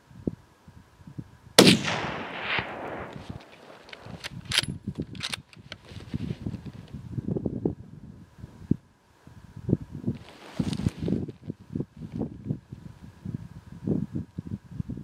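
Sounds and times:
rifle shot echoing: 1.6s - 4.2s
rifle clicks: 1.6s - 5.7s
rustling: 2.6s - 4.6s, 10.2s - 11.6s.

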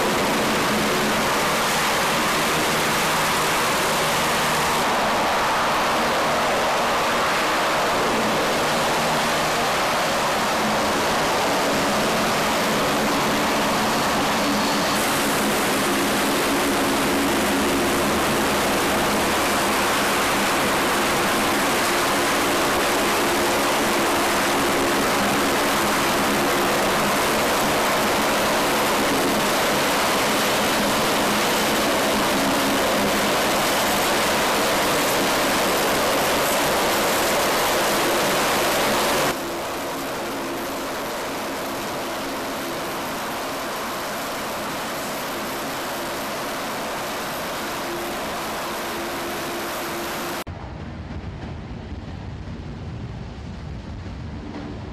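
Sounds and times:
hovercraft loud rushing noise: 0.0s - 54.9s.

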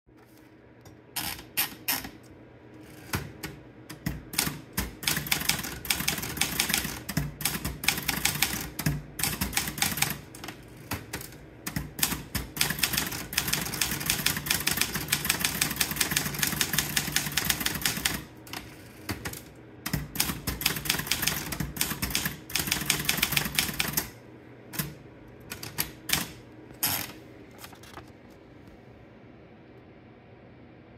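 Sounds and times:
manual typewriter typing: 3.1s - 24.2s, 24.8s - 28.0s.

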